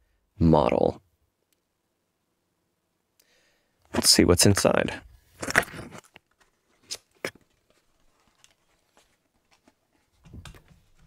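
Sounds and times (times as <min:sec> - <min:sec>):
lid and packing rustling: 0:05.4 - 0:11.0.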